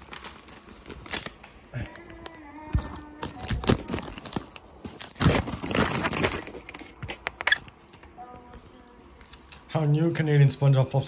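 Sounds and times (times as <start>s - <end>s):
plastic wrapper crinkling: 0.0s - 8.1s.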